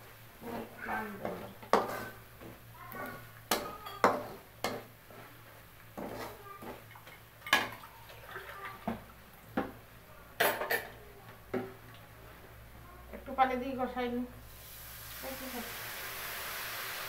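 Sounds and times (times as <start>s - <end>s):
metal spatula scraping a pan: 0.4s - 2.2s, 6.0s - 6.4s.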